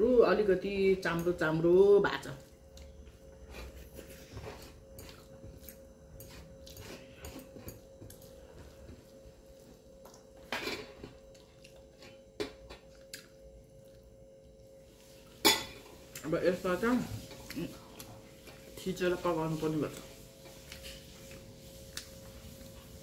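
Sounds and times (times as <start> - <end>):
chewing and mouth noises: 11.2 - 14.7.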